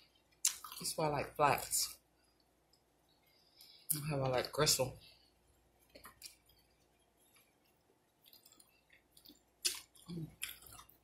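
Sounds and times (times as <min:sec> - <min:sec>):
wet chewing and lip smacks: 0:00.4 - 0:00.8, 0:05.8 - 0:11.0.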